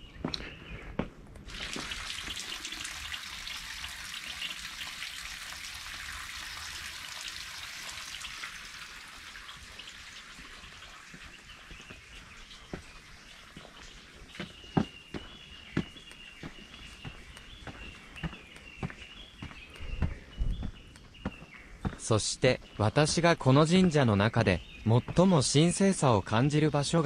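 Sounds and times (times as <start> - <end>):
footsteps: 10.4 - 22.1.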